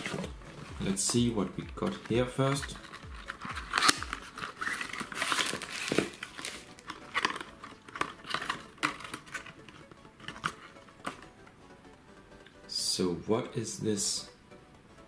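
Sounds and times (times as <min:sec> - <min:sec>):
cardboard box rustling and scraping: 0:00.0 - 0:10.7.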